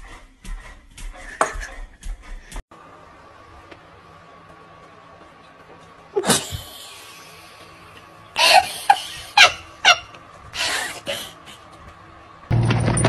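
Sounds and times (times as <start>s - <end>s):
person laughing: 8.4s - 10.2s.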